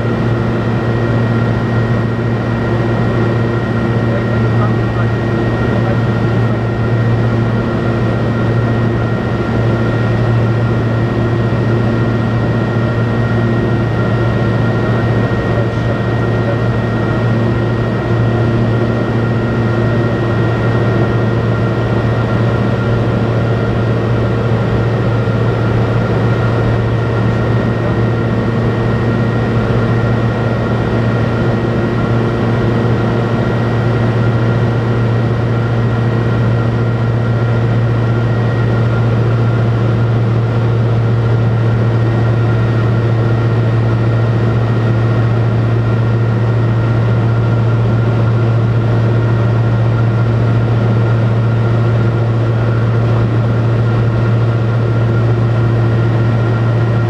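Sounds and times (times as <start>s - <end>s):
aircraft engine droning: 0.0s - 57.0s.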